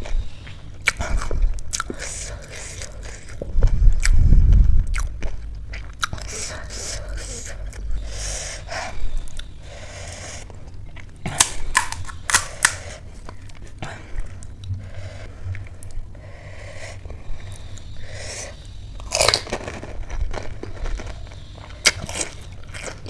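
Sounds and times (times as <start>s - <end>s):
crisp shells crunching: 11.4s - 13.6s.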